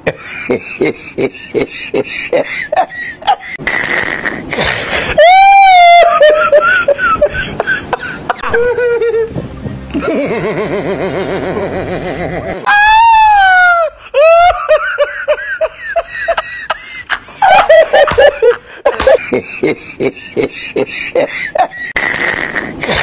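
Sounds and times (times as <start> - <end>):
person laughing and chattering: 0.0 - 12.7, 13.8 - 23.0
person wailing: 5.1 - 6.4.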